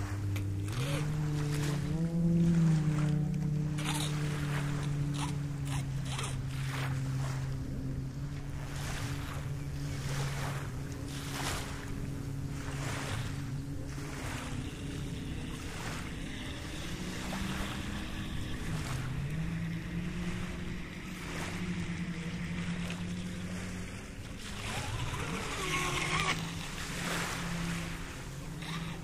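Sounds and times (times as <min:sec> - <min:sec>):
rc speedboat motor buzzing: 0:00.0 - 0:29.0
small waves: 0:00.0 - 0:29.0
wind on microphone: 0:00.0 - 0:29.0.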